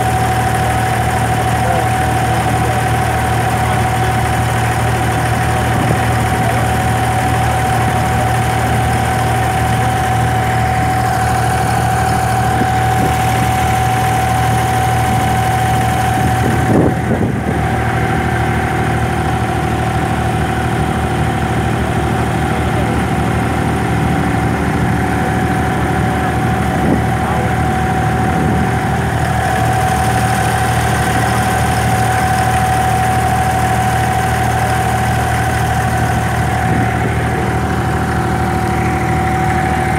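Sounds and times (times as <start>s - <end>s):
boat diesel engine humming: 0.0s - 39.9s.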